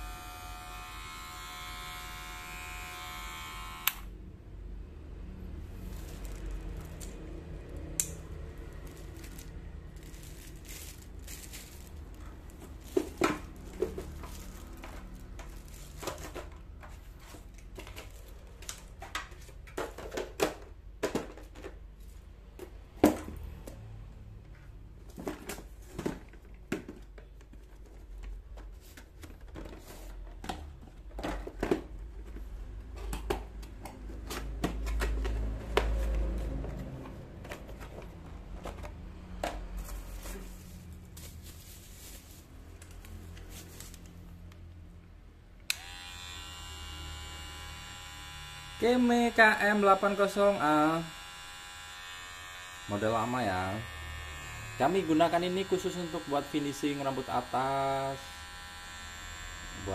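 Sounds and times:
packaging crinkling and rustling: 8.6 - 19.4, 39.8 - 44.3.

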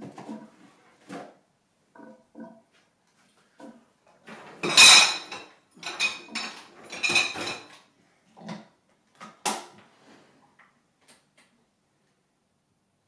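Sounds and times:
dishes and cutlery clattering: 4.3 - 7.9.

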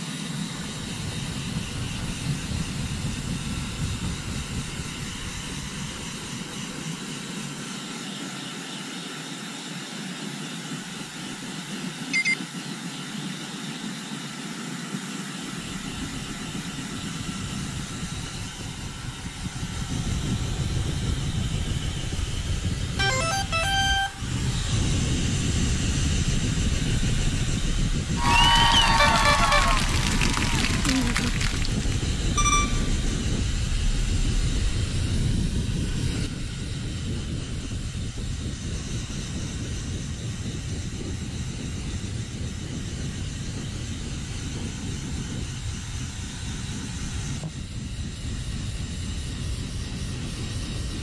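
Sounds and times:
hair dryer blowing: 28.1 - 33.2.

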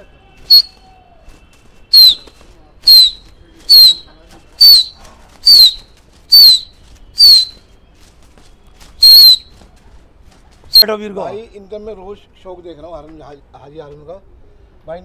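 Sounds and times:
person whistling sharp notes: 0.4 - 2.3, 2.9 - 4.0, 6.4 - 7.8, 9.0 - 9.5.

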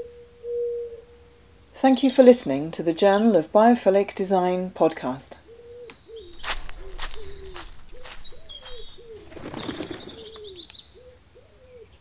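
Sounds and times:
low falling bird hoots: 5.5 - 11.9.

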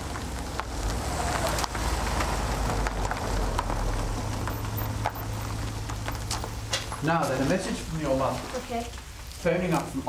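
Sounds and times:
car engine rumble: 0.0 - 7.9
tyre noise: 0.0 - 10.0.

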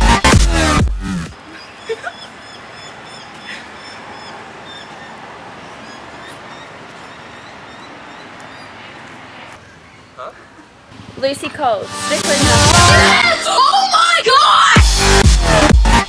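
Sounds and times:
small birds chirping: 1.4 - 10.9.

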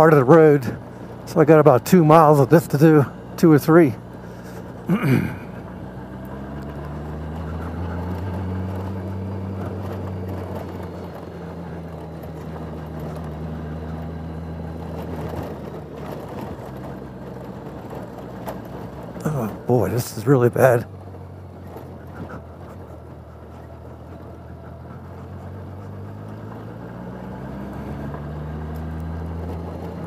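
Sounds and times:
motorcycle engine running: 0.0 - 30.0
road noise on dirt road: 0.0 - 30.0.

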